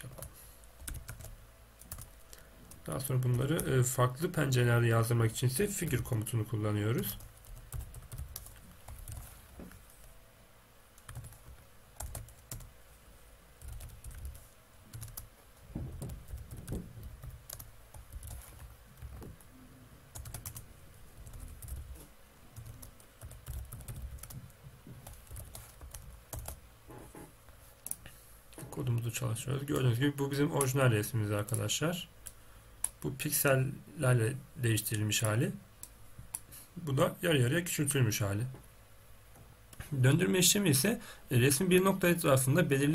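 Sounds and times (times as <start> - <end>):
computer keyboard typing: 0.0 - 3.8, 7.1 - 9.3, 11.0 - 12.7, 13.6 - 15.3, 15.9 - 19.5, 20.1 - 22.0, 22.6 - 26.6.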